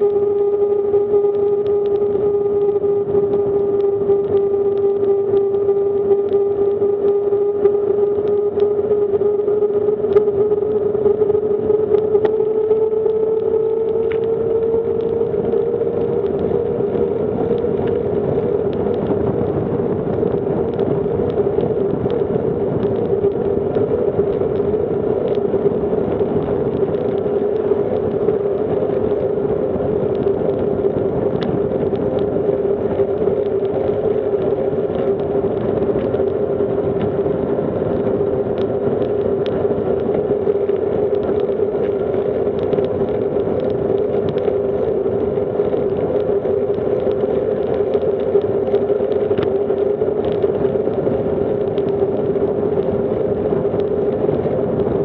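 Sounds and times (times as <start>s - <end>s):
light ticks: 0.0s - 8.8s, 9.8s - 54.9s
bicycle tyres humming on asphalt: 0.0s - 55.0s
rushing wind noise: 0.0s - 55.0s.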